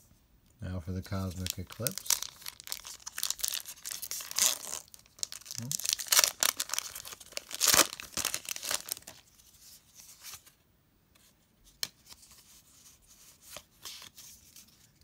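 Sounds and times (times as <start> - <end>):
foil wrapper tearing: 1.5 - 9.2
cards rustling and sliding: 11.2 - 15.0.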